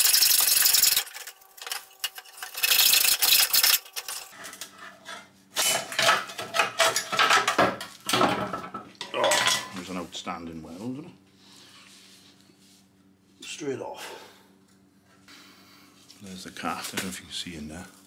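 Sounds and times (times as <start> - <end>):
metal pieces clanking: 5.6 - 9.8.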